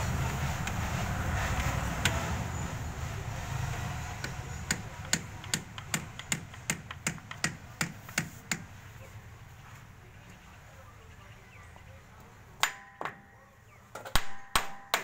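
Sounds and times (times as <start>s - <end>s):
hammer tapping on steel: 4.2s - 8.7s.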